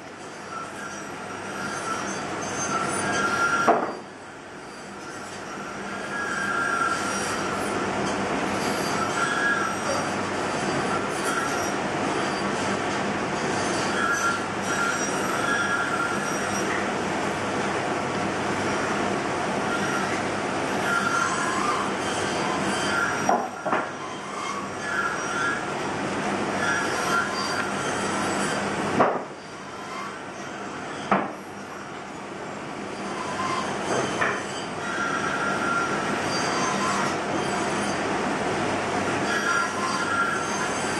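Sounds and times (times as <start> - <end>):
short squeaky tones: 33.0 - 38.0.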